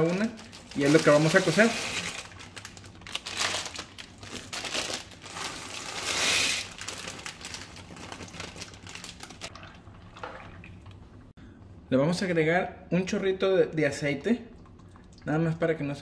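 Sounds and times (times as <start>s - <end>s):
plastic bags crinkling: 0.0s - 9.6s.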